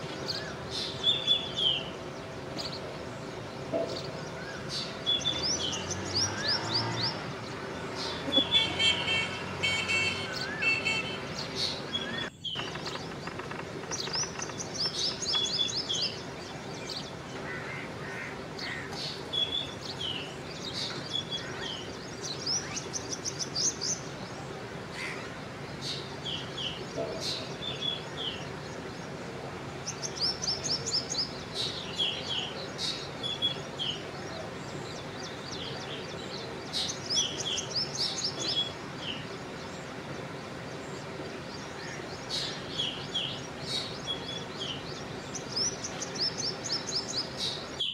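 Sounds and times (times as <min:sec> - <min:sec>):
bird chirping high runs: 0:00.0 - 0:24.1
birds chirping: 0:00.0 - 0:47.9.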